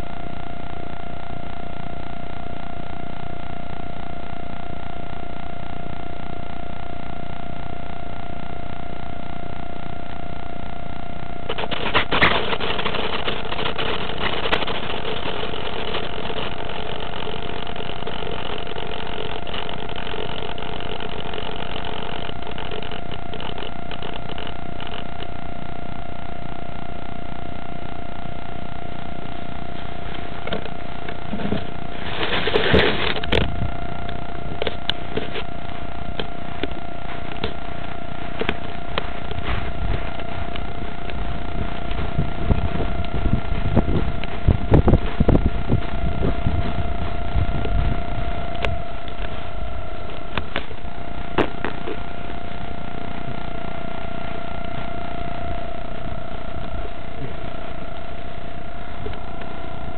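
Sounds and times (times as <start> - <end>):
constant hiss: 0.0 - 59.9
thin steady tone: 0.0 - 59.9
small clicks: 11.4 - 25.4
wind noise on camera: 11.5 - 25.4, 29.1 - 59.9.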